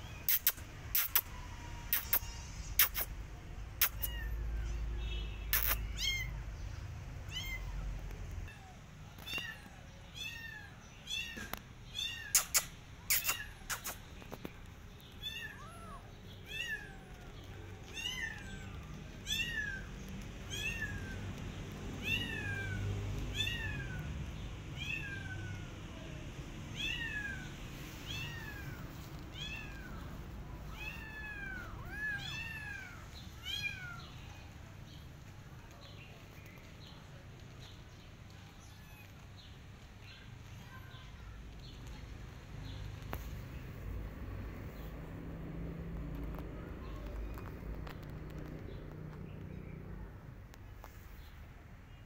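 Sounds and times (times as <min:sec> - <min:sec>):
kitten meowing: 0:00.0 - 0:03.1, 0:03.8 - 0:04.8, 0:05.5 - 0:06.3, 0:07.3 - 0:07.8, 0:08.5 - 0:14.0, 0:15.2 - 0:19.9, 0:20.5 - 0:21.2, 0:22.0 - 0:24.1, 0:26.7 - 0:34.6
sharp clicks: 0:00.3 - 0:01.3, 0:01.9 - 0:03.1, 0:03.8 - 0:04.2, 0:12.3 - 0:15.2.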